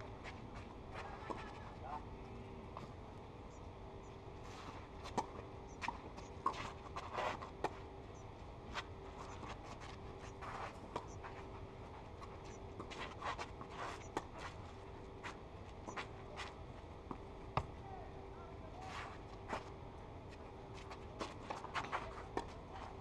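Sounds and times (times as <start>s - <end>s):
shoes scuffing on clay: 8.7s - 11.6s, 18.8s - 23.0s.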